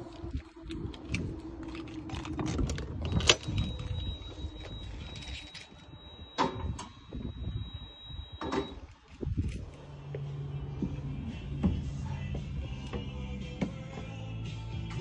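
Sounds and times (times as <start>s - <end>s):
keys rattling: 0.9s - 5.9s
thin steady high tone: 3.0s - 9.1s.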